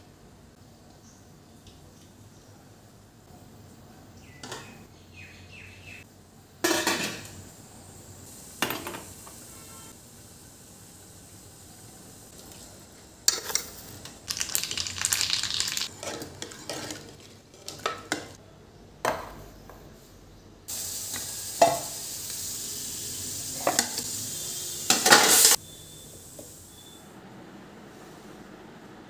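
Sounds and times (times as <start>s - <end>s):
seeds sizzling in hot oil: 6.7s - 16.9s, 20.7s - 27.1s
steady hiss: 7.2s - 14.0s, 20.7s - 27.1s
steel cookware clinking and scraping: 13.3s - 13.9s, 15.9s - 18.4s.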